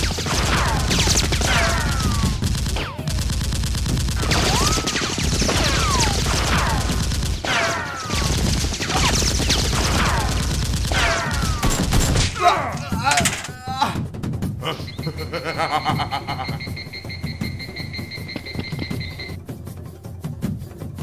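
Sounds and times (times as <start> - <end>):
automatic gunfire: 0.0 - 12.4
whistling ricochet whines: 4.2 - 6.2.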